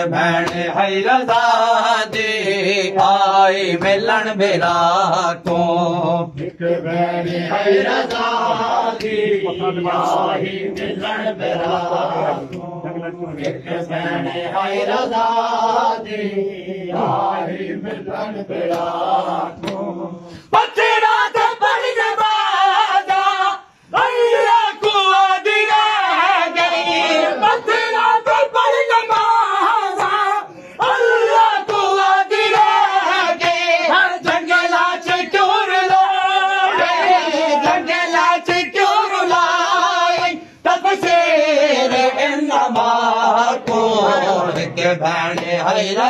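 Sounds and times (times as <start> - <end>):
men chanting together: 0.0 - 46.0
rhythmic chest slapping: 0.0 - 46.0.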